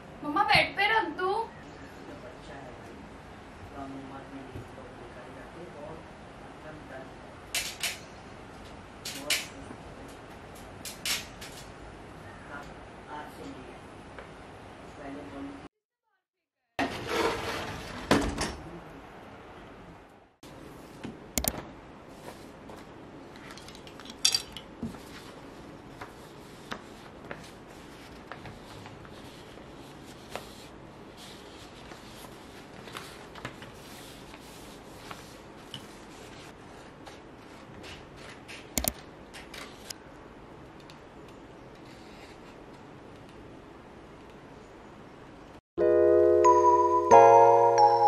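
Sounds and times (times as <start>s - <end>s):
sharp click: 21.4s - 21.6s, 38.7s - 39.0s
paper rustling and shuffling: 24.8s - 38.8s
paper crinkle: 25.0s - 38.4s.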